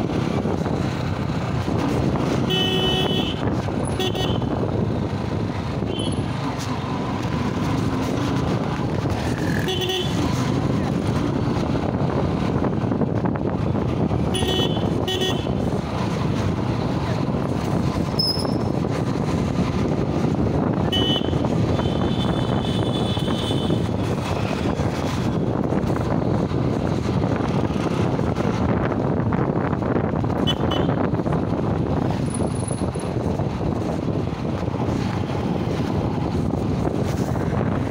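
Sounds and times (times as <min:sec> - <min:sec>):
motorbike engine and road noise: 0:00.0 - 0:37.9
vehicle horn toots: 0:02.4 - 0:04.5, 0:09.6 - 0:10.2, 0:14.3 - 0:15.6, 0:20.9 - 0:23.8, 0:30.4 - 0:31.0.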